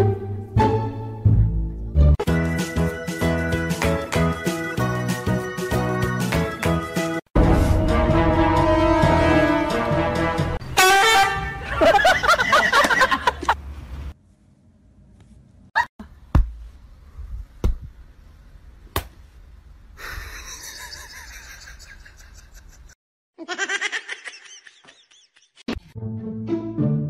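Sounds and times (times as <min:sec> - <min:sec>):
person giggling: 0:20.0 - 0:25.7.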